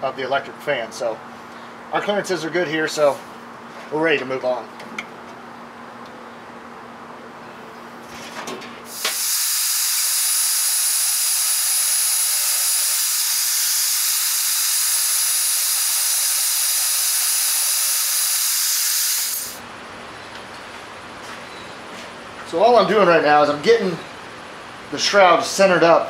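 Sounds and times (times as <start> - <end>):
band saw cutting metal: 8.9 - 19.6.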